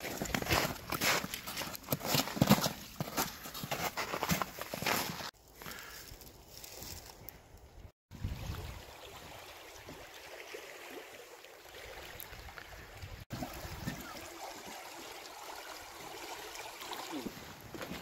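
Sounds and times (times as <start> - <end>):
stream running water: 8.1 - 18.0.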